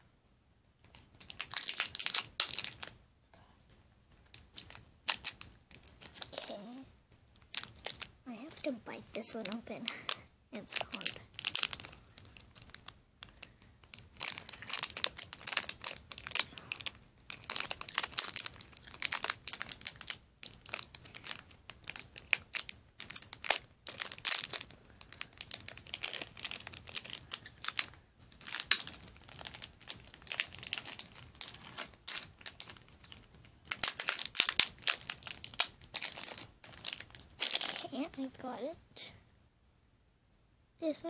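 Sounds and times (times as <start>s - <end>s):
plastic packet crinkling: 0.9s - 3.0s, 4.3s - 6.8s, 7.4s - 38.5s.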